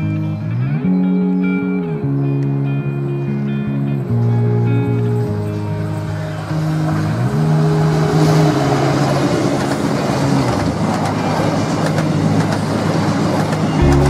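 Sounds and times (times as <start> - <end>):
background music: 0.0 - 14.0
diesel train passing: 4.4 - 14.0
train wheel clicks: 9.5 - 14.0.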